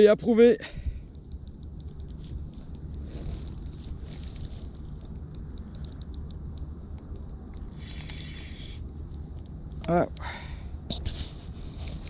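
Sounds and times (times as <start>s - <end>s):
low steady rumble: 0.0s - 12.0s
fishing reel clicking: 1.0s - 8.8s.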